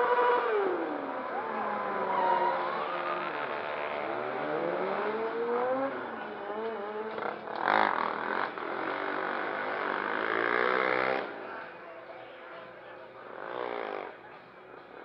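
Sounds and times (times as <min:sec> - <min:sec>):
quad engine revving: 0:03.7 - 0:11.3.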